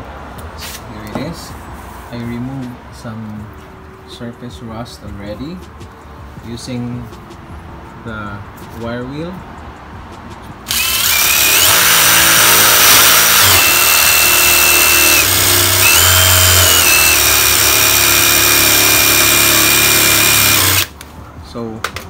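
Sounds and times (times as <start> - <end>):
drill motor whine: 10.7 - 20.9.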